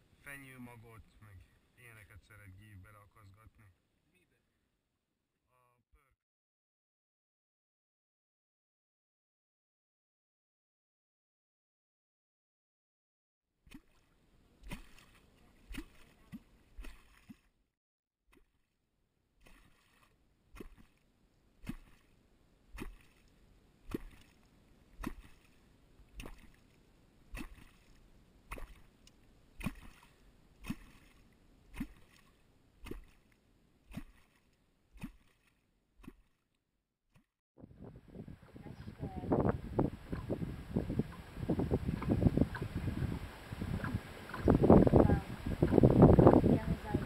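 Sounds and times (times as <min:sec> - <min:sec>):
hollow plop with splash in water: 0:13.6 - 0:17.5, 0:19.4 - 0:21.0, 0:21.6 - 0:36.4, 0:41.1 - 0:46.3.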